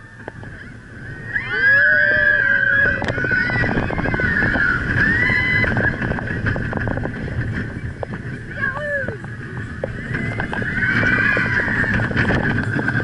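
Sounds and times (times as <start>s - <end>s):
roller coaster wheels rumbling: 0.0s - 13.0s
riders screaming: 0.6s - 6.6s, 8.6s - 13.0s.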